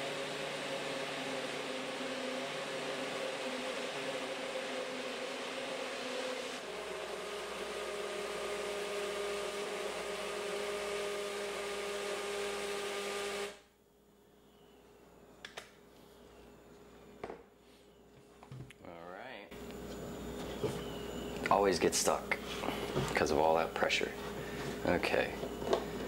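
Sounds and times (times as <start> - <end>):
blender motor running: 0.0 - 13.6, 22.5 - 26.0.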